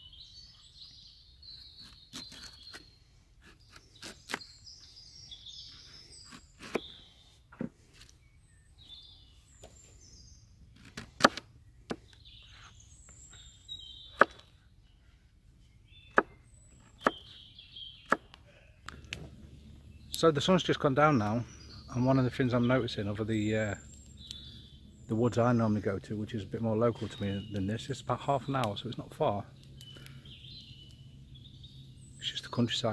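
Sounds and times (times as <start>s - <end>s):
songbirds chirping: 0.0s - 32.9s.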